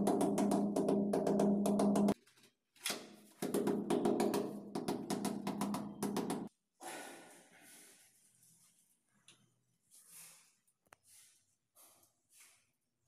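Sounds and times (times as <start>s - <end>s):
rubber mallet tapping tiles: 0.0s - 2.2s.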